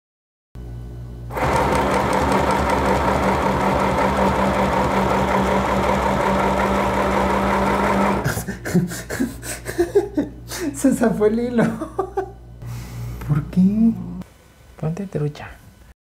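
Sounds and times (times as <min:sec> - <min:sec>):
sewing machine running: 0:01.3 - 0:08.3.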